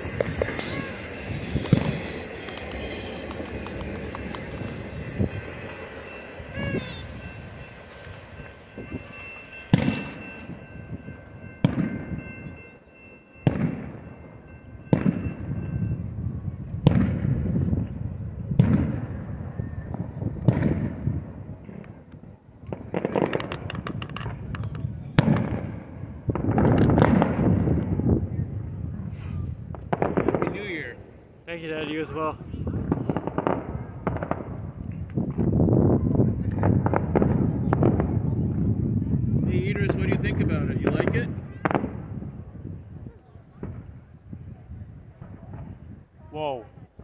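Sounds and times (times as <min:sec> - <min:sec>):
fireworks booming: 0:00.0 - 0:12.6, 0:13.4 - 0:14.2, 0:14.8 - 0:15.8, 0:16.8 - 0:28.8, 0:29.6 - 0:31.0, 0:32.7 - 0:42.5
freight train rumble: 0:00.0 - 0:31.4.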